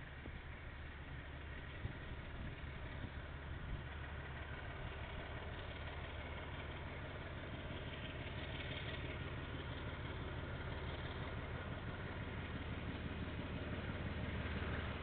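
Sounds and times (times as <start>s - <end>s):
diesel locomotive engine rumbling: 0.0s - 15.0s.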